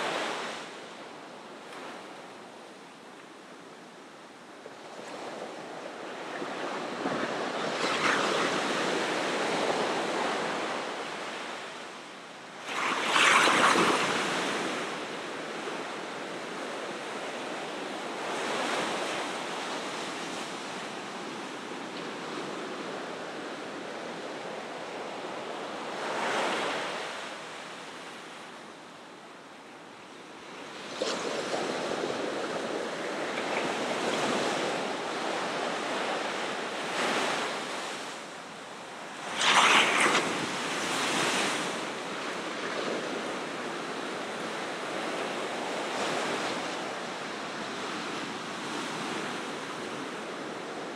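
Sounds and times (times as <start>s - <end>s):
waves breaking on shore: 4.3s - 22.2s, 30.6s - 50.9s.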